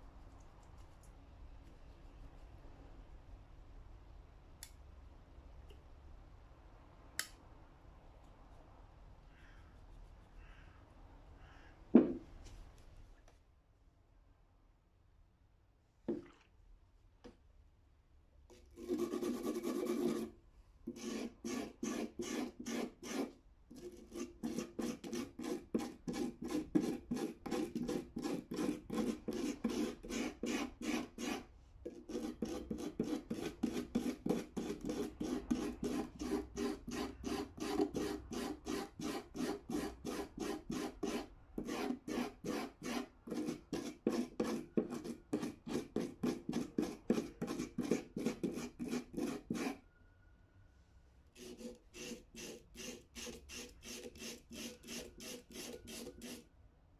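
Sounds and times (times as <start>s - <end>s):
hand brush scrubbing metal: 18.8s - 20.3s, 20.9s - 49.8s, 51.4s - 56.4s.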